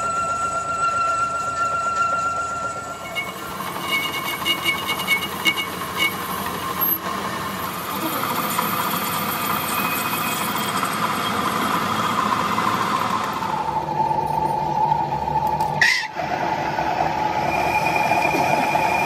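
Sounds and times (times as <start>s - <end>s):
metal lathe cutting steel: 0.0s - 19.0s.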